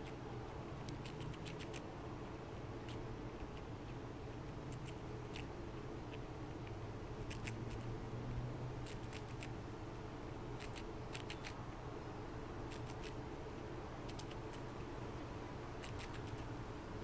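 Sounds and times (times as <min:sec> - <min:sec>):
squirrel cracking seed shells: 0:00.0 - 0:04.0, 0:08.8 - 0:09.6, 0:10.6 - 0:11.6, 0:12.7 - 0:13.2, 0:14.0 - 0:14.8, 0:15.8 - 0:16.5
steady low hum: 0:00.0 - 0:17.0.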